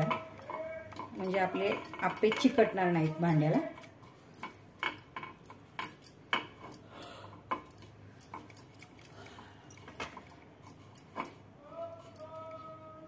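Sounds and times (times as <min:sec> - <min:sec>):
light clicks and taps on pan: 0:00.0 - 0:06.8.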